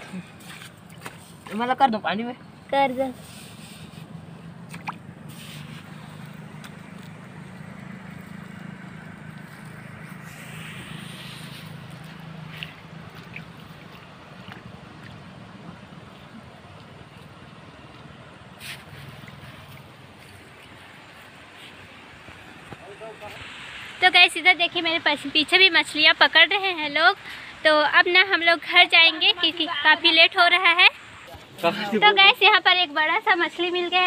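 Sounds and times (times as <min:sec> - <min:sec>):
flowing river water: 0:00.0 - 0:34.0
water drips and splashes: 0:02.5 - 0:26.4.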